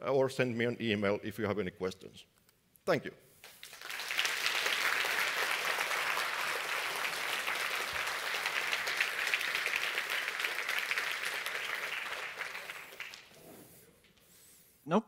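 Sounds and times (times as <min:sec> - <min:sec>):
audience applauding: 0:03.5 - 0:13.6.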